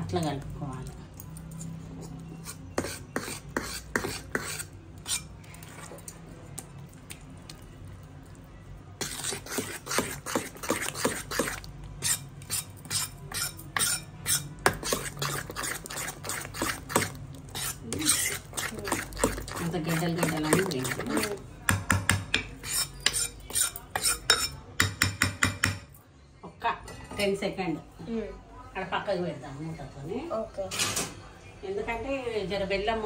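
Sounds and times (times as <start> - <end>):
spoon stirring batter in steel bowl: 0.0 - 25.9.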